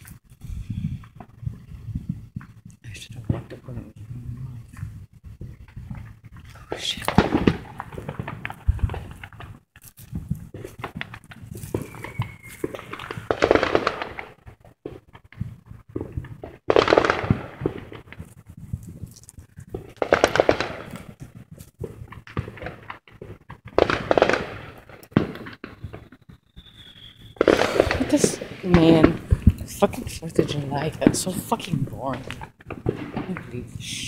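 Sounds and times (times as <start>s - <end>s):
fireworks popping and crackling: 0.0s - 34.0s.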